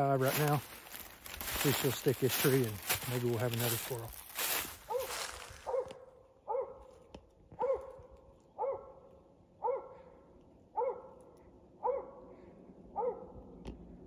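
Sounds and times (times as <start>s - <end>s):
dog barking: 4.9s - 6.9s, 7.6s - 10.1s, 10.8s - 11.2s, 11.8s - 12.3s, 13.0s - 13.4s.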